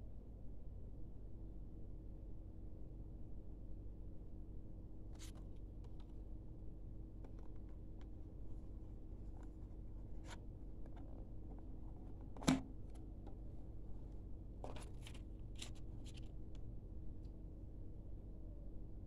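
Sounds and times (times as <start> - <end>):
faint steady hum: 0.0 - 19.0
light taps and scrapes: 5.2 - 6.1, 14.6 - 16.6.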